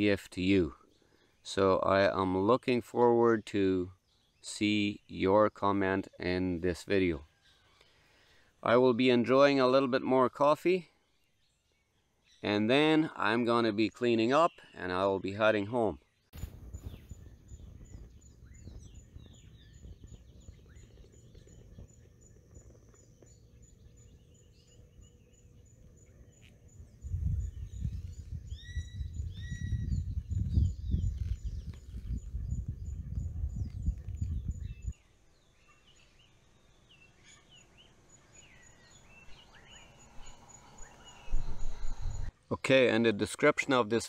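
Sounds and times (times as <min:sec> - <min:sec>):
birds chirping and calling: 0:14.2 - 0:42.4
wind rumbling on microphone: 0:16.4 - 0:35.0, 0:39.1 - 0:42.3.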